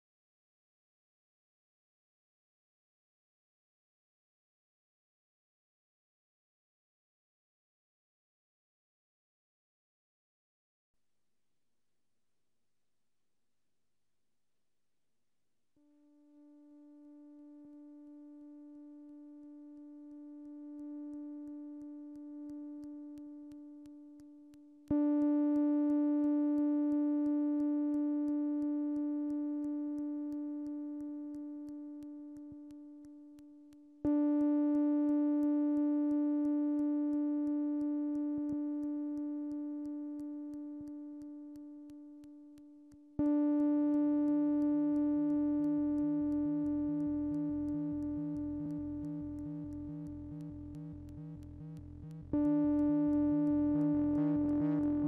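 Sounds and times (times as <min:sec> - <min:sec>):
low pulsing synth pattern: 0:45.6 - 0:55.0
buzzy synthesizer note: 0:46.6 - 0:55.0.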